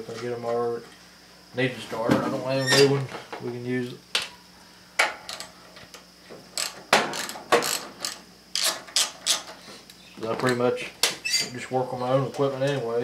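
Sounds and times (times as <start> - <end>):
socket ratchet clicking: 6.6 - 9.5.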